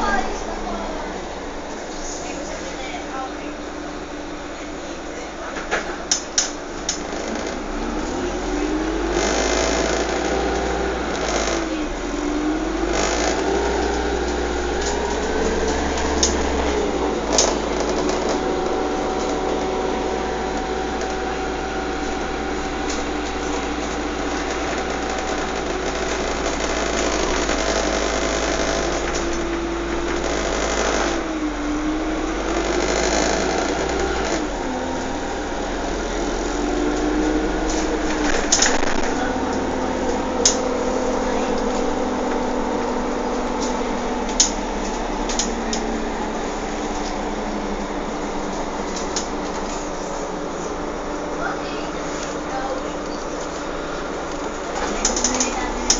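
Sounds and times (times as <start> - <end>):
steady rumble: 0.0 - 55.9
vehicle motor whining: 0.0 - 55.9.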